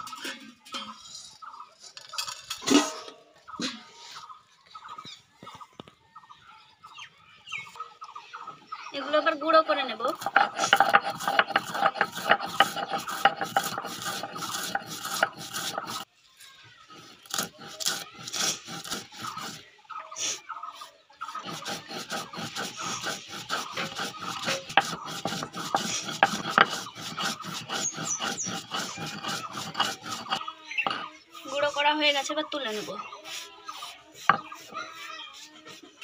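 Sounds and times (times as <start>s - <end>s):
stone grinding spices: 10.1s - 16.1s, 16.9s - 19.6s, 21.3s - 31.5s, 33.2s - 35.8s.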